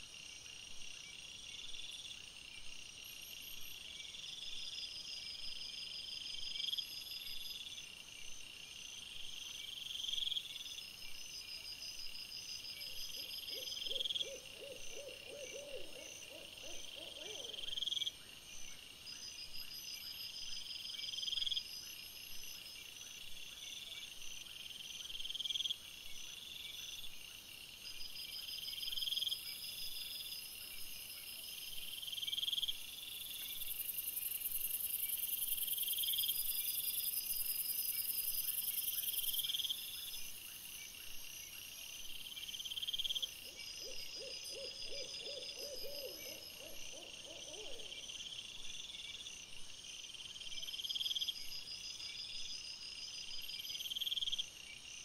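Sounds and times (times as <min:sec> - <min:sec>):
hoot-like animal call: 0:13.2 - 0:17.8, 0:43.5 - 0:48.0.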